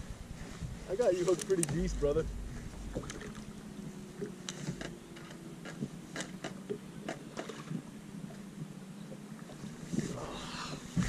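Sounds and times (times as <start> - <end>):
faint steady hum: 0.0 - 11.0
light clicks: 1.3 - 1.9
small water splashes: 2.8 - 5.0, 5.6 - 11.0.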